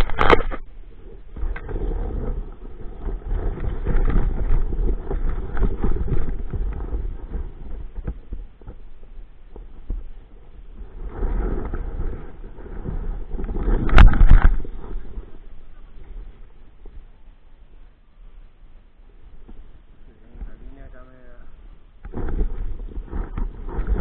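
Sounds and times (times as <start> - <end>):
wind buffeting microphone: 0.0 - 17.2, 19.2 - 24.0.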